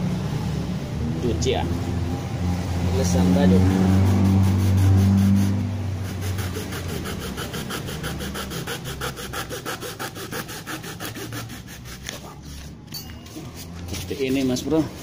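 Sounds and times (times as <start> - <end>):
hand saw cutting plastic: 3.9 - 12.8, 13.4 - 15.0.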